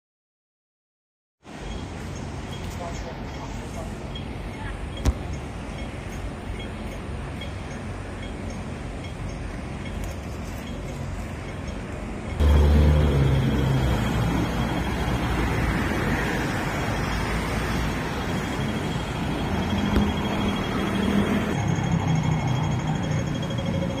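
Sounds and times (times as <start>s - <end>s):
city street traffic: 1.4s - 24.0s
vehicle engine passing close by: 12.4s - 16.7s.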